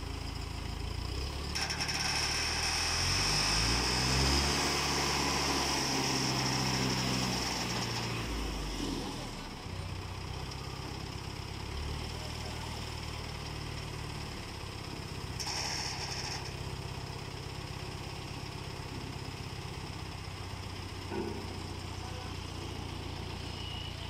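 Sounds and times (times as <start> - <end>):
diesel engine droning: 0.0 - 24.0
burst of high-pitched noise: 15.4 - 16.6.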